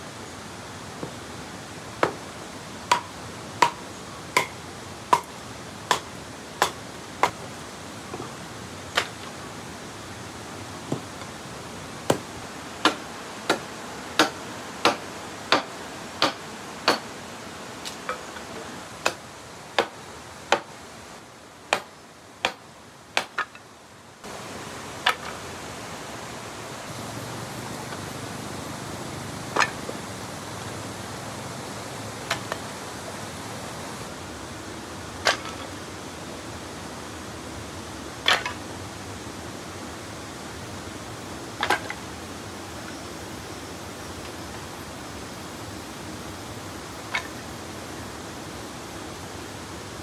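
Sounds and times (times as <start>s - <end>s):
steady hiss: 0.0s - 50.0s
firewood clacking onto woodpile: 23.2s - 23.6s, 29.6s - 29.8s, 35.2s - 35.7s, 38.2s - 38.6s, 41.6s - 42.0s.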